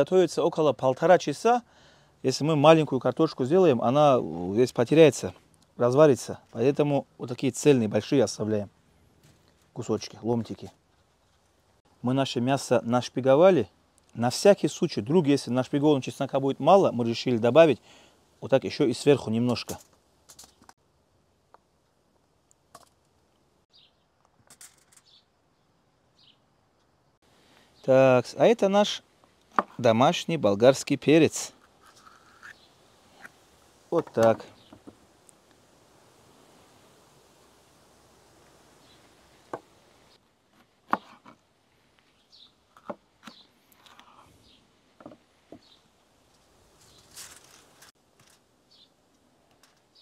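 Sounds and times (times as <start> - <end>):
faint bird chirps: 23.7 - 24.2, 42.1 - 42.6.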